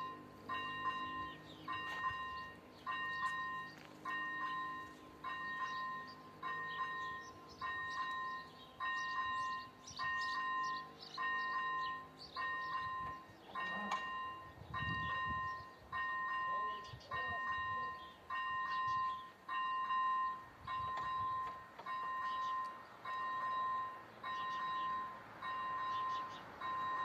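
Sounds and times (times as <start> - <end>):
level crossing warning bell: 0.0 - 27.0.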